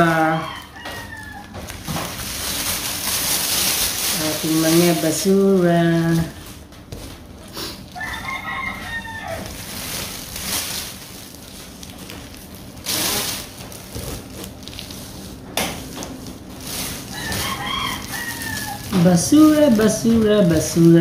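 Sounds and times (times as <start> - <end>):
plastic bag crinkling: 0.0 - 21.0
rooster crowing: 0.1 - 1.7, 7.9 - 9.8, 17.0 - 19.3.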